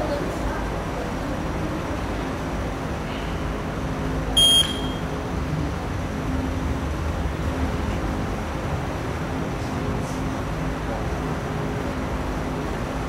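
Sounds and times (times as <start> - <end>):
low background hum: 0.0 - 13.0
short loud electronic beep: 4.4 - 5.1.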